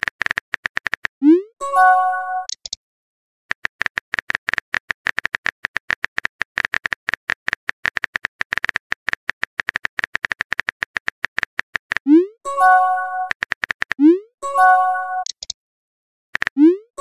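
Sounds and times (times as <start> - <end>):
keyboard typing clicks: 2.4 - 2.8, 3.5 - 14.1, 15.0 - 15.6.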